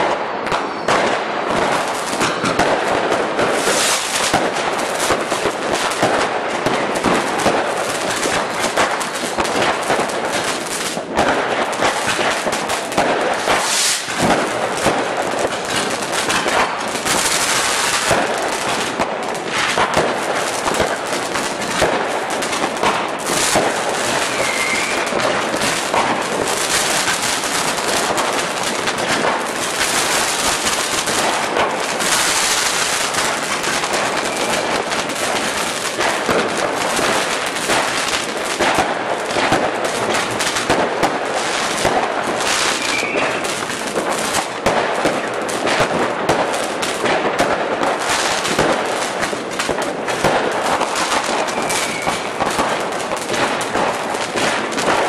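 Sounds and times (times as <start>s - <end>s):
rising firework whistle: 0.0s - 1.2s, 3.5s - 4.4s, 13.5s - 14.1s, 23.5s - 26.0s, 33.9s - 34.8s, 42.4s - 43.6s, 51.1s - 52.6s
fireworks crackling and popping: 0.0s - 55.0s.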